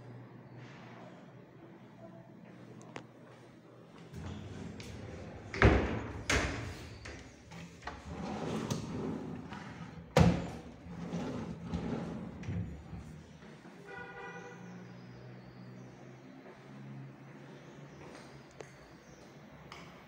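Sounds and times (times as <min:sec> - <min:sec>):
drawers sliding on runners: 0:04.2 - 0:13.0.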